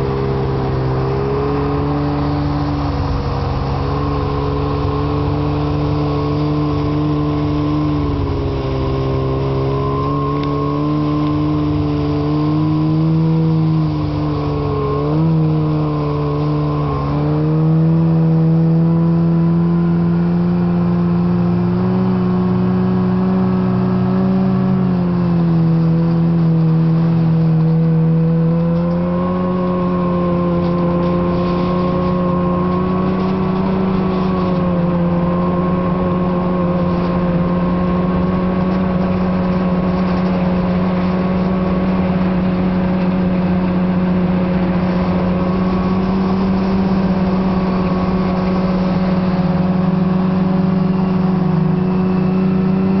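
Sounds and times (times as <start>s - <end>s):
snowmobile engine running: 0.0s - 53.0s.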